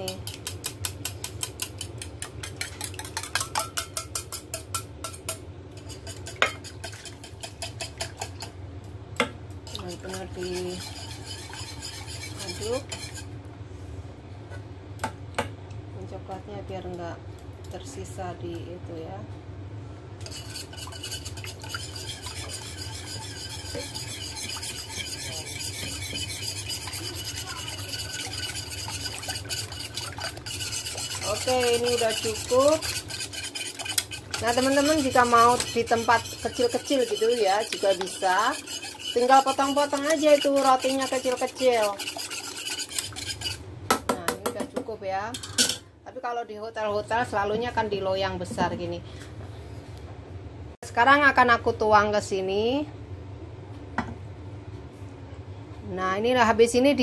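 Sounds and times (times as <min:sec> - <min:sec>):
whisk clicking against metal bowl: 0:00.0 - 0:08.5, 0:09.7 - 0:13.2, 0:20.2 - 0:43.6.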